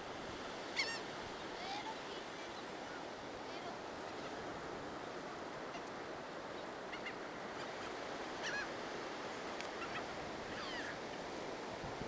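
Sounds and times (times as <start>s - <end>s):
wind: 0.0s - 12.0s
gulls calling: 0.7s - 1.1s, 5.6s - 8.8s, 9.6s - 11.0s.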